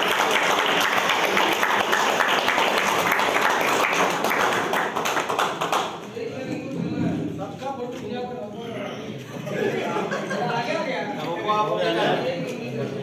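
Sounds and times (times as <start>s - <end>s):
crowd applauding: 0.0s - 6.0s.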